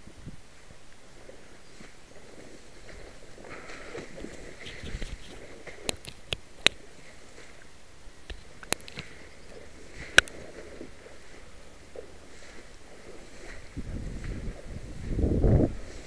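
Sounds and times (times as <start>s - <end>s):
camera handling rustling: 4.3s - 6.8s
sharp clicks and taps: 8.3s - 9.1s.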